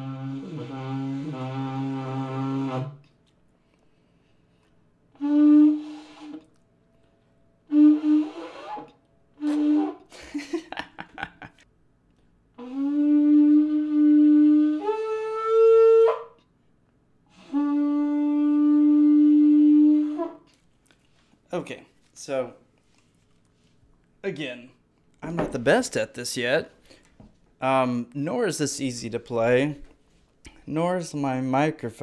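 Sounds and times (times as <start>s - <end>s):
horn blasts: 0.0s - 3.0s, 5.1s - 6.5s, 7.4s - 10.1s, 12.6s - 16.2s.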